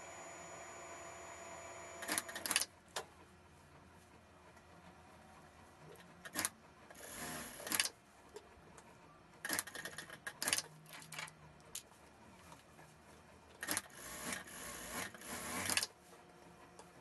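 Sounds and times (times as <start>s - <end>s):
sewing machine stitching: 0.0s - 2.7s, 6.2s - 7.9s, 9.4s - 11.3s, 13.6s - 16.0s.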